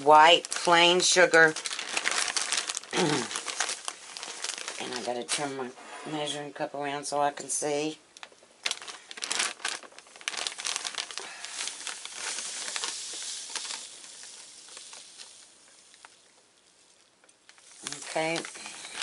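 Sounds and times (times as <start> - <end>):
plastic bag crinkling: 0.0 - 5.7, 8.2 - 19.0
sugar pouring into a cup: 10.5 - 19.0.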